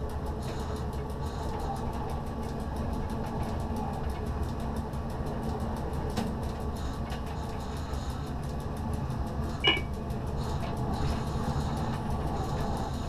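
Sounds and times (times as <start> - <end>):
train rumbling on rails: 0.0 - 13.0
short high beep: 9.6 - 9.9.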